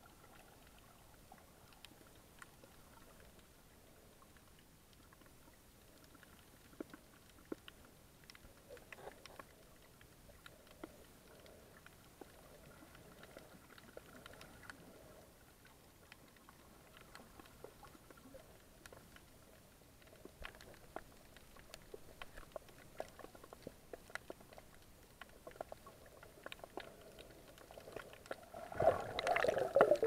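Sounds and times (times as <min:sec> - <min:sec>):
low underwater hiss: 0:00.0 - 0:30.0
sharp underwater clicks and crackles: 0:00.0 - 0:30.0.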